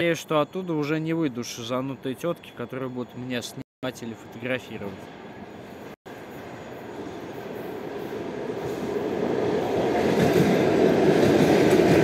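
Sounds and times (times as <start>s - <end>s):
train rumble: 4.2s - 12.0s.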